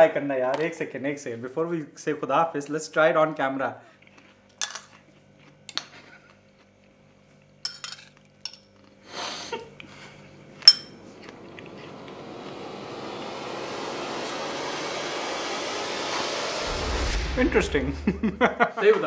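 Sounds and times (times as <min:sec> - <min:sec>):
spoons clinking on ceramic bowls: 0:07.6 - 0:08.8, 0:10.7 - 0:10.9.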